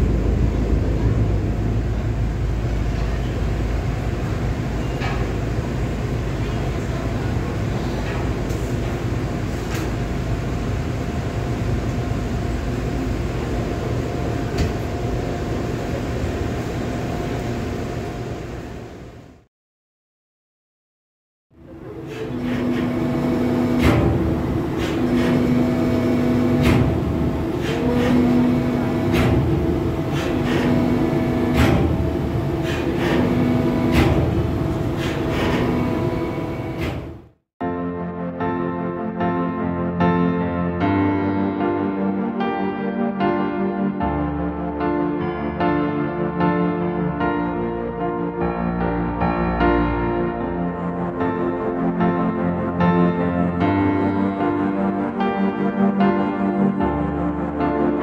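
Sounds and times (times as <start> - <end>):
rushing noise: 0.0 - 19.3, 21.6 - 37.3
ship engines droning: 0.0 - 19.4, 21.6 - 37.4.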